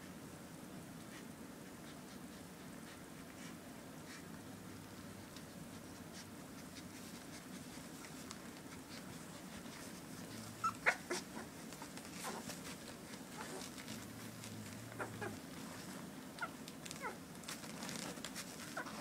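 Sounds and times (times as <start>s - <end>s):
faint low hum: 0.0s - 19.0s
puppies squeaking and whimpering: 10.4s - 14.0s, 14.8s - 17.2s.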